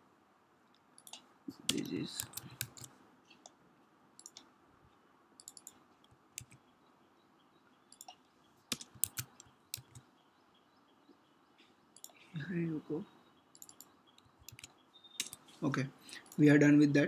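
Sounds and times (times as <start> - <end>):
mouse and keyboard clicks: 1.0 - 3.6, 4.2 - 4.5, 5.4 - 6.6, 7.9 - 10.1, 13.5 - 15.6.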